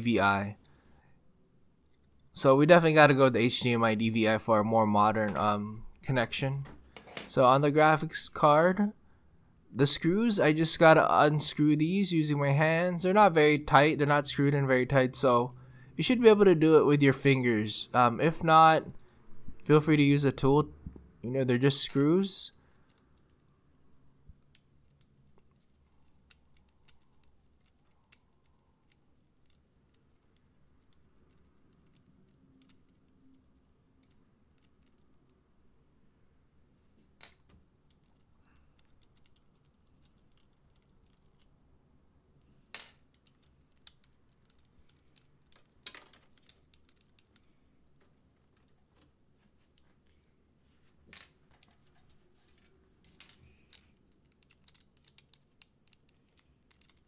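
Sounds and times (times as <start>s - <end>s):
small metal screws clicking: 24.4s - 35.1s, 37.9s - 41.5s, 42.8s - 47.5s, 51.1s - 57.0s.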